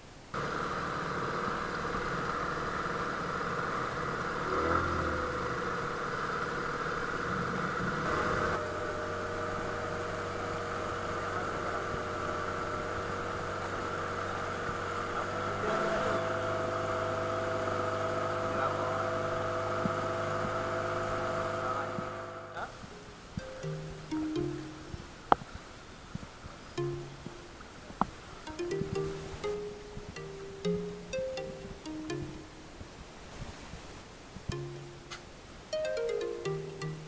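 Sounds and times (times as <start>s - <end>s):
outboard motor running: 0.4s - 22.4s.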